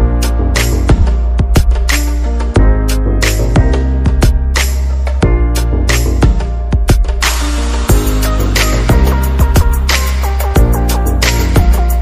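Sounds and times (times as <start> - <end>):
background music with a beat: 0.0 - 12.0.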